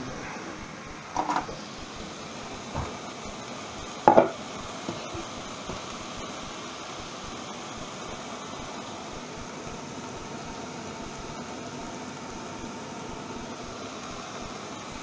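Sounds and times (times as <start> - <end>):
steady hiss: 0.0 - 15.0
glass lid clattering on hob: 4.1 - 4.4.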